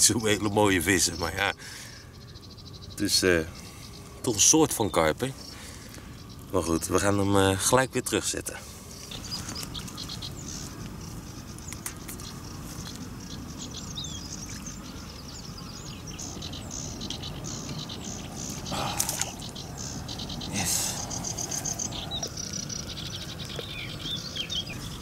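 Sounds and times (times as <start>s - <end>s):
songbirds chirping and singing: 0.0s - 25.0s
steady low rumble: 8.5s - 25.0s.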